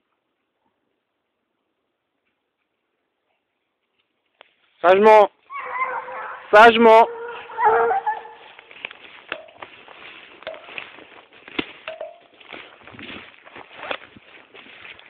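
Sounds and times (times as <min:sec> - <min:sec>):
rustling in undergrowth: 0:02.1 - 0:15.0
dog whining: 0:05.5 - 0:06.5, 0:07.1 - 0:08.6
twigs cracking: 0:07.1 - 0:15.0.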